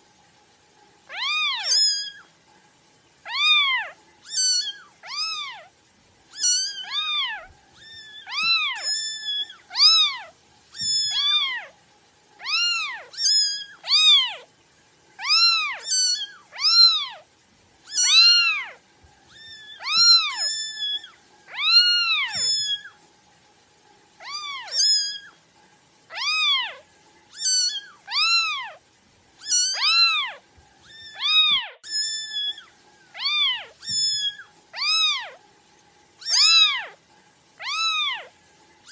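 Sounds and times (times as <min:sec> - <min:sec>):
kittens mewing: 0:03.2 - 0:11.7, 0:12.4 - 0:14.5, 0:15.2 - 0:17.3, 0:17.9 - 0:22.9, 0:24.2 - 0:25.3, 0:26.1 - 0:28.8, 0:29.4 - 0:35.4, 0:36.2 - 0:37.0, 0:37.6 - 0:38.3.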